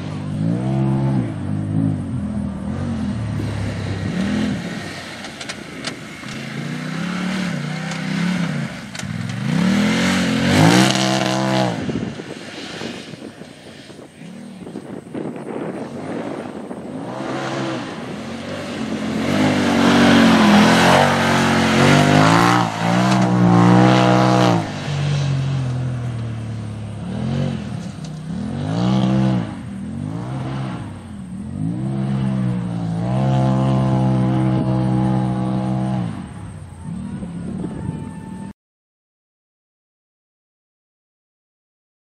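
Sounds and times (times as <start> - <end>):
engine revving hard: 6.1 - 12.0, 16.1 - 25.6, 27.0 - 36.3.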